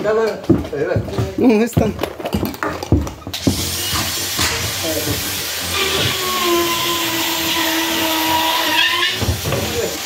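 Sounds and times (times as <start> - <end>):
machine hiss: 3.4 - 10.0.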